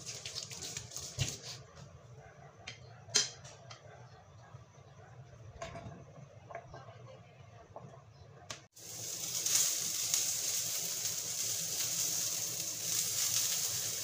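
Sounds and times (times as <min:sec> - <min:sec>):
vegetables sizzling in frying pan: 0:08.7 - 0:14.0.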